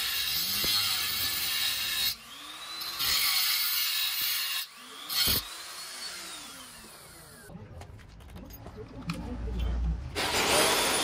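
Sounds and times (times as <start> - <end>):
power tool grinding: 0.0 - 7.5.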